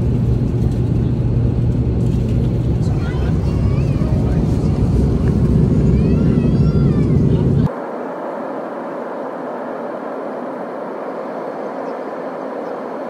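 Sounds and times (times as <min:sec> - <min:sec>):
airplane cabin deep rumble: 0:00.0 - 0:13.0
faint voices: 0:02.8 - 0:07.8.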